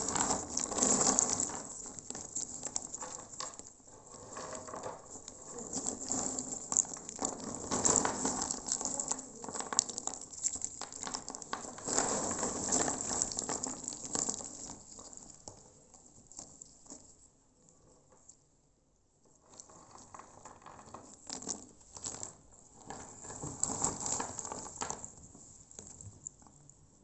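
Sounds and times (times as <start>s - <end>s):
nuts clattering together: 0.0s - 15.6s.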